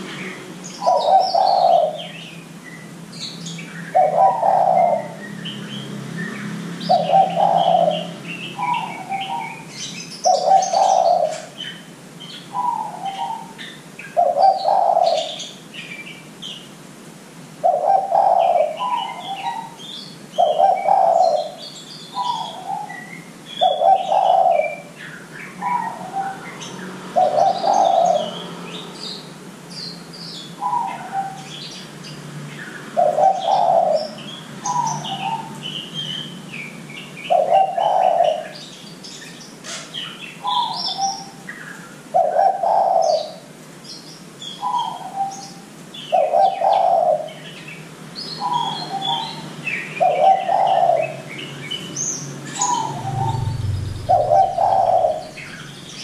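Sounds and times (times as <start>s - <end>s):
small birds chirping: 0.0s - 16.8s, 17.6s - 56.0s
dove cooing: 0.8s - 2.2s, 3.9s - 5.2s, 6.9s - 9.6s, 10.2s - 11.6s, 14.2s - 15.4s, 17.6s - 21.6s, 23.6s - 24.9s, 25.6s - 26.4s, 27.2s - 28.4s, 33.0s - 35.6s, 37.2s - 38.6s, 42.1s - 43.5s, 46.1s - 47.4s, 50.0s - 51.2s, 52.6s - 55.7s.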